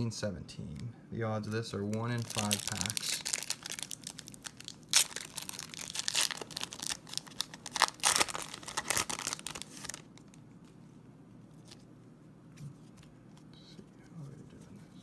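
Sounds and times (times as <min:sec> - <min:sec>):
foil wrapper ripping: 0:01.8 - 0:10.3
foil crackling in hand: 0:01.8 - 0:10.4.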